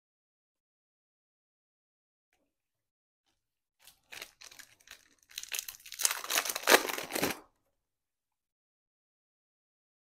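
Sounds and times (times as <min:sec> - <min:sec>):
wrapper crinkling and tearing: 0:03.8 - 0:07.5.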